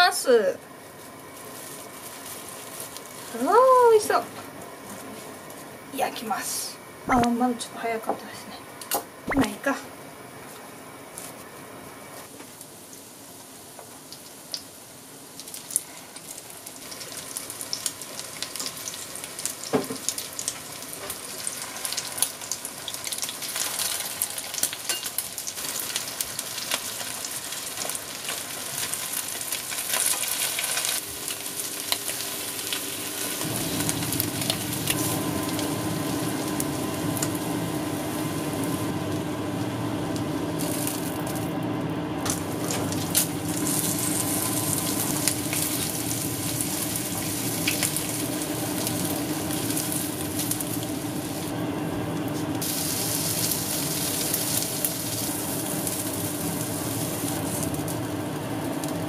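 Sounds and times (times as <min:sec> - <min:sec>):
food sizzling in frying pan: 0:00.0 - 0:06.4, 0:12.2 - 0:59.0
steady hum: 0:03.3 - 0:12.3, 0:31.0 - 0:59.0.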